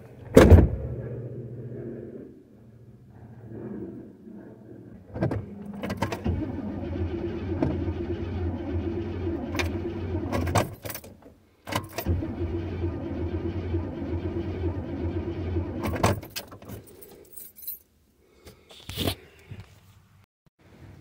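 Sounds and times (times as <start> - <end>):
car engine cranking: 5.1 - 16.7.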